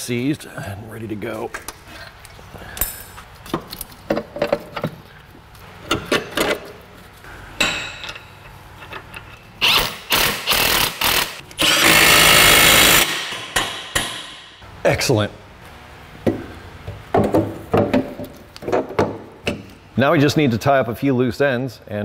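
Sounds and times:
power tool driving bolt: 9.6 - 14.3.

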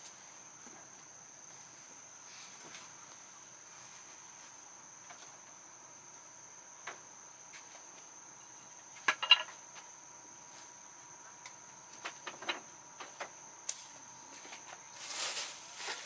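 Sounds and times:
clatter of sharp knocks: 9.1 - 9.6.

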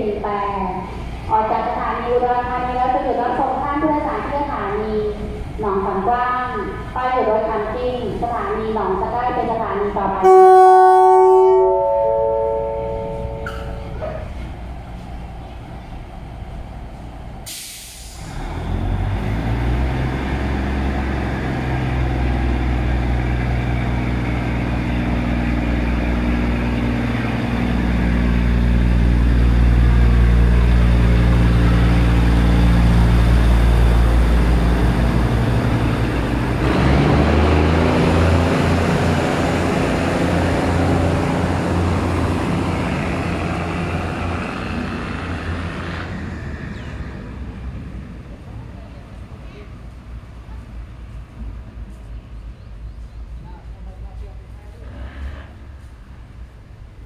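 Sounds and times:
diesel train engine droning: 0.0 - 57.0
air brake hiss: 17.4 - 18.4.

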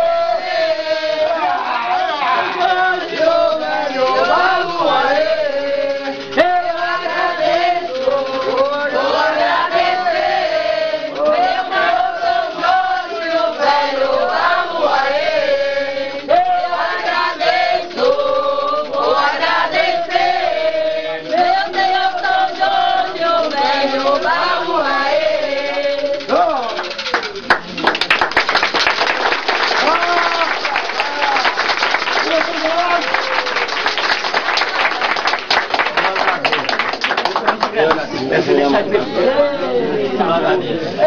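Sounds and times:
group singing in unison: 0.0 - 26.8.

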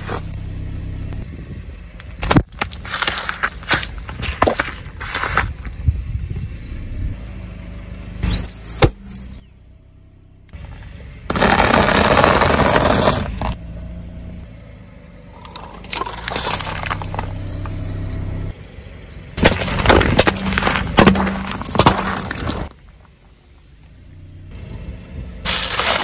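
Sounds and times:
car engine running: 0.0 - 26.0
car tyre crushing objects: 2.0 - 5.9, 10.5 - 13.6, 15.3 - 18.2, 19.2 - 23.9, 25.4 - 26.0
plastic cups crunching and popping: 15.5 - 17.3.

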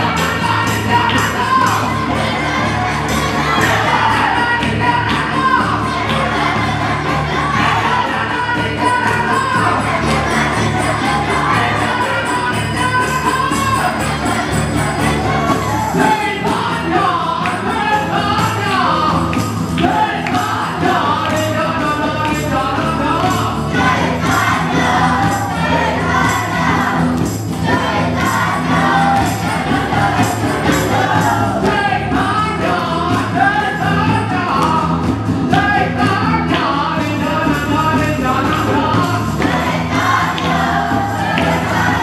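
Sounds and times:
acoustic guitars: 0.0 - 42.0
crowd singing a chant: 0.0 - 42.0
hand clapping: 0.0 - 42.0
percussion beat: 0.0 - 42.0.

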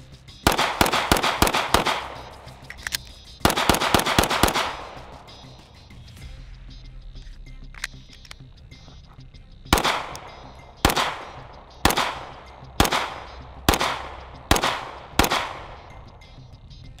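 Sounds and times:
pistol shots with echo: 0.5 - 5.8, 9.7 - 16.4.

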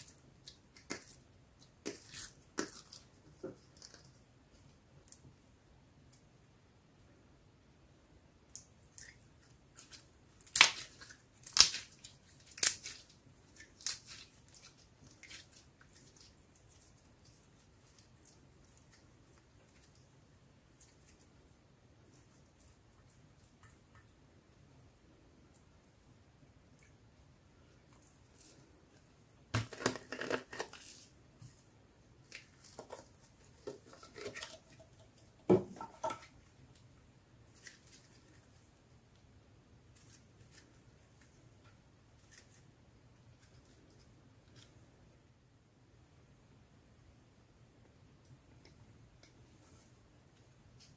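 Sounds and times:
slime squishing and crackling: 9.7 - 20.0.

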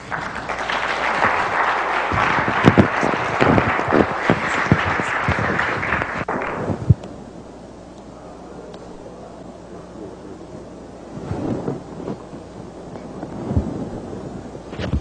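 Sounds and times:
audience applauding: 0.0 - 7.0
sharp single claps: 0.0 - 7.1.

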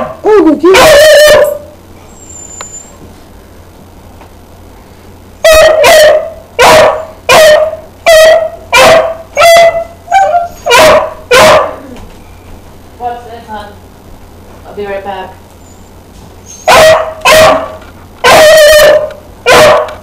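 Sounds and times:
dog barking: 0.7 - 1.6, 5.4 - 11.9, 16.6 - 20.0.

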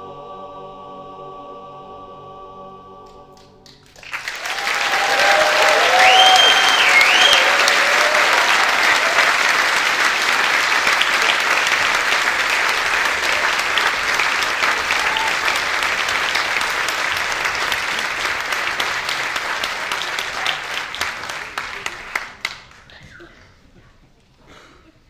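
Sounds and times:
audience applauding: 3.4 - 23.0.

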